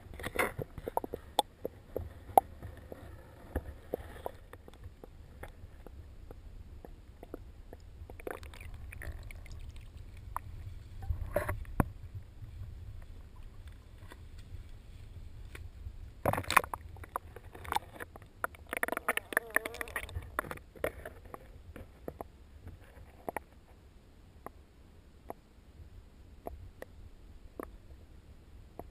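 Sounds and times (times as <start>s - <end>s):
water splashing: 8.1s - 10.5s.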